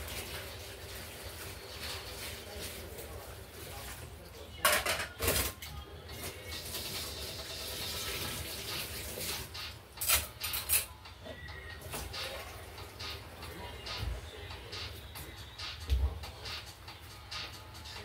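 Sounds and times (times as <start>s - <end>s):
cutlery and dishes clattering: 4.6s - 5.8s, 9.6s - 11.0s.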